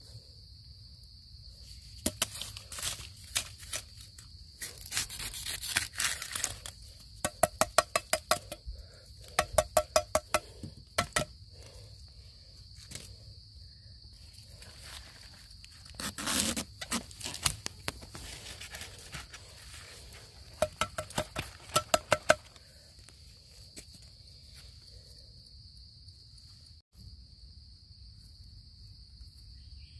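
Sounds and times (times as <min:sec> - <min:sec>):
machete striking bamboo: 0:02.0 - 0:03.6, 0:07.2 - 0:08.6, 0:09.3 - 0:11.3, 0:20.5 - 0:22.5
rustling of leaf litter: 0:14.2 - 0:20.5.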